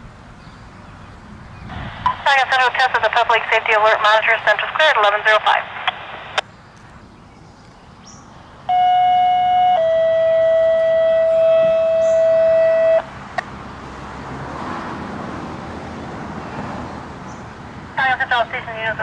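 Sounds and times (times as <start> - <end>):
radio hiss: 1.7 - 6.4
two-tone paging tones: 8.7 - 13.0.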